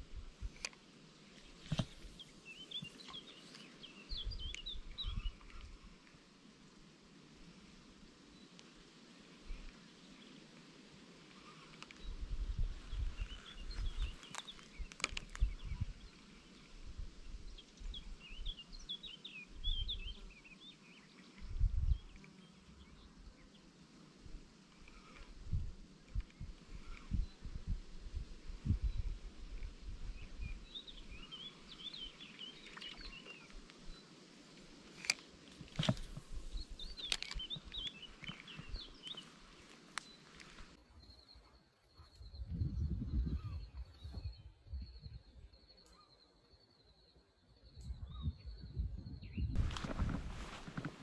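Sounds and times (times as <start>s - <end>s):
songbird chirping: 0.0s - 6.2s, 8.2s - 51.0s
muffled bumps on microphone: 49.0s - 51.0s.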